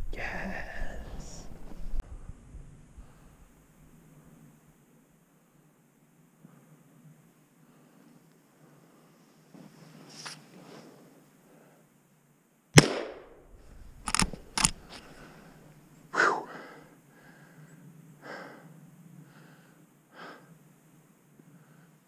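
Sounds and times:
rifle shot: 12.8s - 14.9s
rifle clicks: 12.8s - 15.2s.

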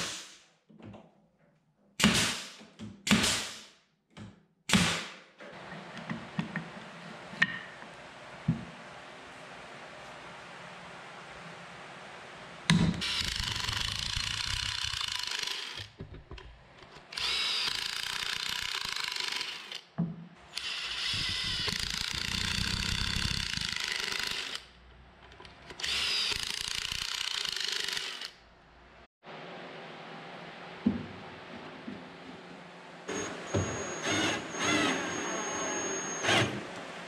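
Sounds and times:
cordless drill boring into wood: 13.0s - 15.9s, 17.2s - 19.8s, 20.6s - 24.6s, 25.8s - 28.4s, 33.9s - 36.6s.

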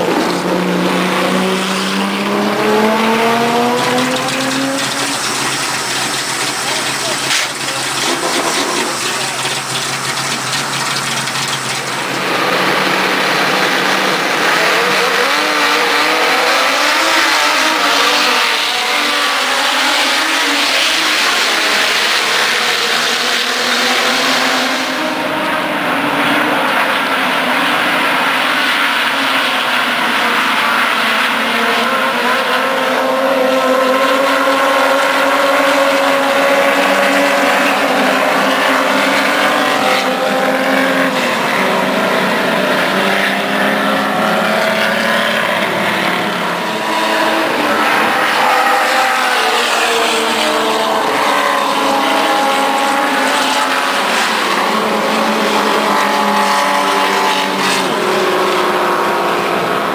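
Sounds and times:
race car engines revving: 0.0s - 59.9s
car engine idling: 2.2s - 14.4s.

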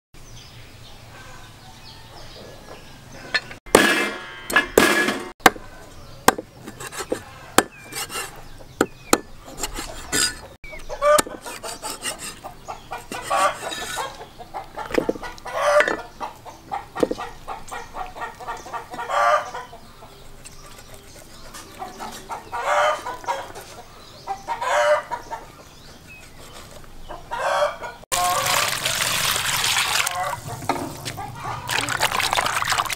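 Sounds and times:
chickens clucking: 5.7s - 28.5s, 30.1s - 32.1s
rooster crowing: 27.3s - 28.9s, 30.0s - 30.6s, 31.2s - 31.8s.

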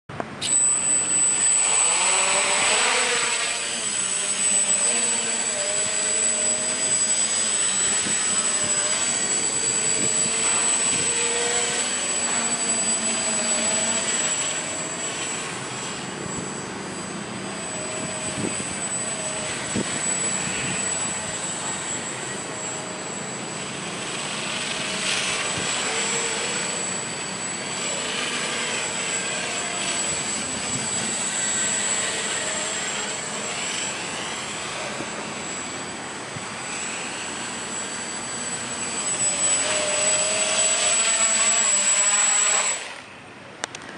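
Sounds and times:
drone motors whining: 0.2s - 43.9s
thin high whistle: 0.4s - 3.7s.

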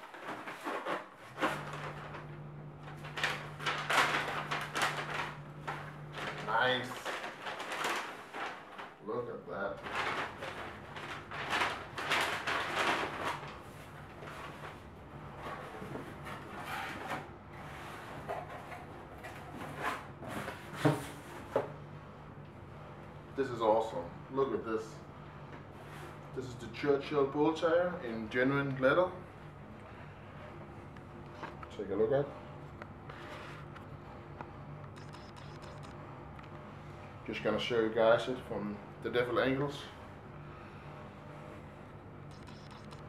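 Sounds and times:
paper packing crinkling and rustling: 0.0s - 21.6s
steady low hum: 0.0s - 43.0s
packing fill rustling: 2.9s - 9.0s, 9.8s - 13.6s.

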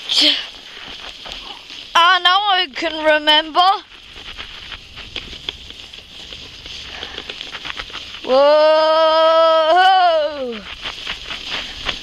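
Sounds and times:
sledge runners scraping snow: 0.0s - 12.0s
small ticks and clicks: 0.1s - 12.0s.

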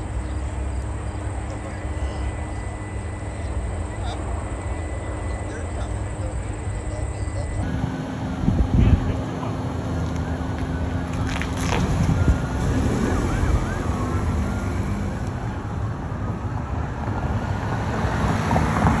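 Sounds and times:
distant emergency siren wailing: 0.0s - 19.0s
wind rumble on microphone: 7.6s - 9.3s, 11.1s - 19.0s.

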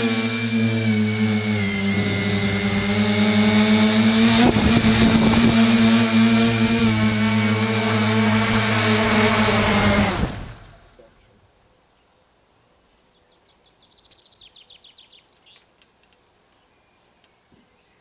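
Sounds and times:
drone motors whining: 0.0s - 11.1s.

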